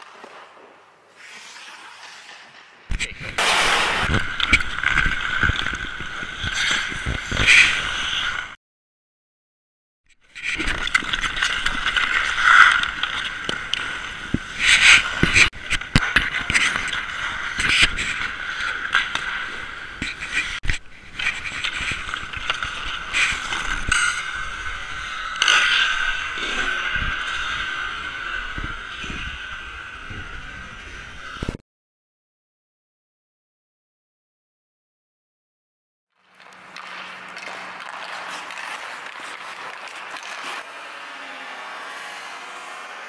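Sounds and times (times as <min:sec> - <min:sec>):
skates scraping on ice: 0:00.0 - 0:08.5, 0:10.4 - 0:31.6, 0:36.2 - 0:43.0
steady high hum: 0:03.4 - 0:04.3
hockey sticks clacking on pucks: 0:10.4 - 0:29.4, 0:36.2 - 0:43.0.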